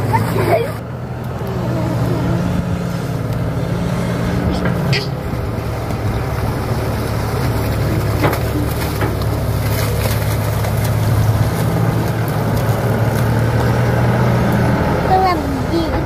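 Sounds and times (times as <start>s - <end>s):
diesel engine droning: 0.0s - 16.0s.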